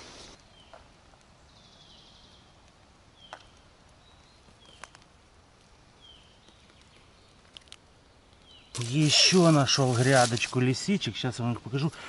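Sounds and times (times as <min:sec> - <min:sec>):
faint clicks: 0:02.6 - 0:05.7, 0:06.4 - 0:08.5.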